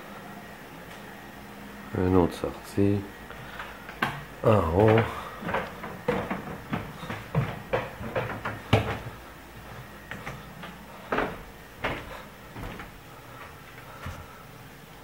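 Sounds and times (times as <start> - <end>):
footsteps on wooden stairs: 3.6 - 14.4.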